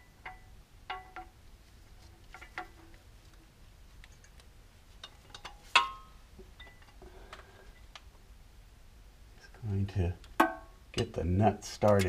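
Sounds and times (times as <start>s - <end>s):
metal parts ticking and tapping: 0.0s - 1.4s, 4.0s - 7.0s.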